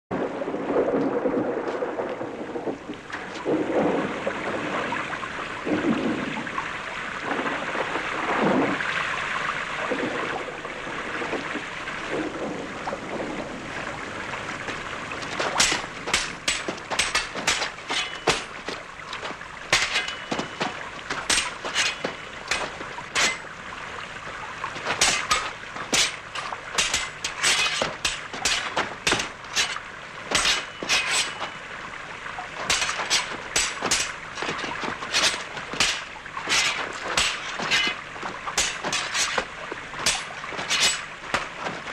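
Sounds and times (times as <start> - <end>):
metal sabres clashing: 15.2 - 23.5, 24.8 - 31.6, 32.6 - 41.9.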